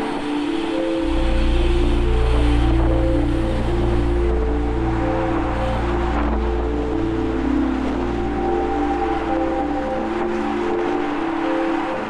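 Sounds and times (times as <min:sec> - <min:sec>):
background music held chords: 0:00.0 - 0:12.0
deep bass: 0:01.0 - 0:09.6.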